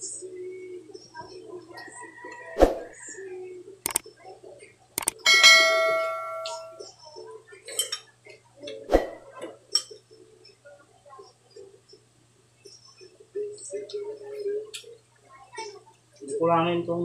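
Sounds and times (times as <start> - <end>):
small clicks from eating: 3.9 - 4.1, 5.0 - 5.2
click: 5.0 - 5.2
bell chime sound effect: 5.3 - 6.8.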